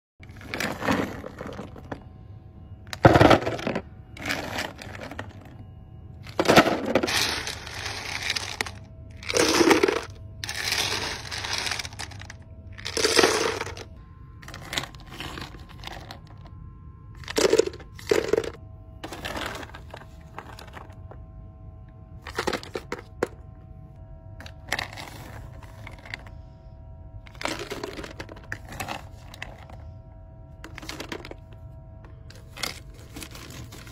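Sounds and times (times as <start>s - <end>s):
candies rattling into paper cup: 0.2s - 2.0s, 6.3s - 16.5s, 17.2s - 21.0s, 22.2s - 23.3s, 24.4s - 26.3s, 27.3s - 29.8s, 30.6s - 31.5s, 32.3s - 33.9s.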